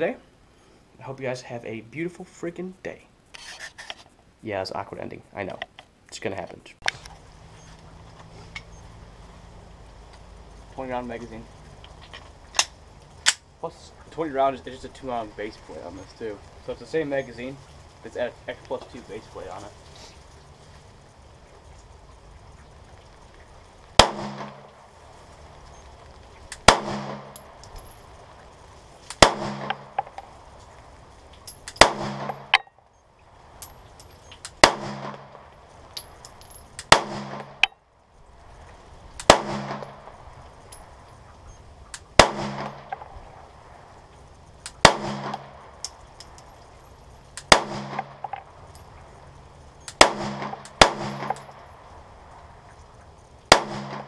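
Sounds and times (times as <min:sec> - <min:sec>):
pistol shots echoing: 0:24.0 - 0:24.6, 0:26.6 - 0:27.4, 0:29.2 - 0:30.0, 0:31.7 - 0:32.6, 0:34.6 - 0:35.4, 0:36.8 - 0:37.6, 0:39.2 - 0:40.1, 0:42.2 - 0:43.0, 0:44.8 - 0:45.5, 0:47.4 - 0:48.3, 0:49.9 - 0:51.5, 0:53.5 - 0:54.0.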